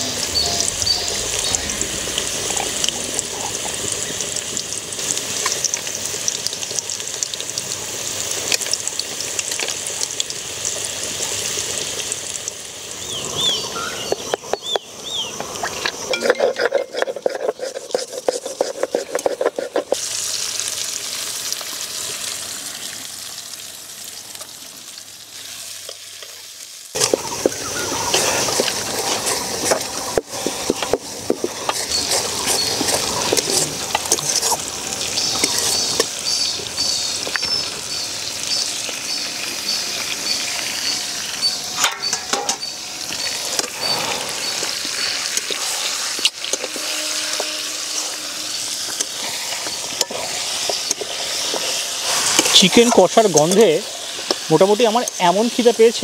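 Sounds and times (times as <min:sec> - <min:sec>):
food sizzling in hot oil: 0:00.0 - 0:56.0
stone grinding on stone slab: 0:15.9 - 0:20.0
hand-mixing sounds: 0:16.0 - 0:20.1, 0:27.0 - 0:37.9, 0:43.1 - 0:56.0.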